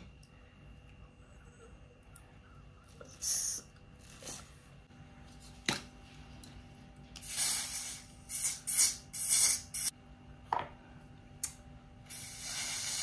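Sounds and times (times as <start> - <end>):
hairspray hissing bursts: 12.1 - 13.0.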